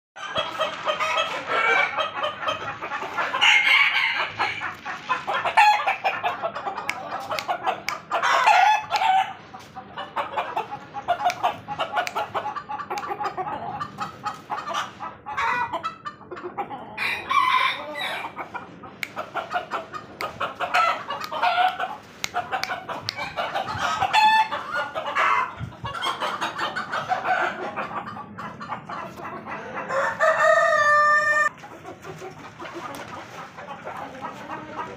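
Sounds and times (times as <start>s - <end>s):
roosters crowing: 0.2s - 9.4s, 16.8s - 18.6s, 19.4s - 31.5s
chickens clucking: 0.2s - 34.9s.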